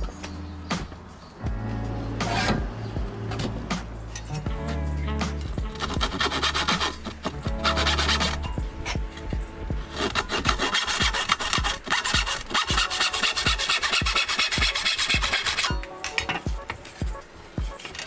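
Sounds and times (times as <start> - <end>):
hand saw cutting wood: 5.6 - 9.0, 9.8 - 16.2.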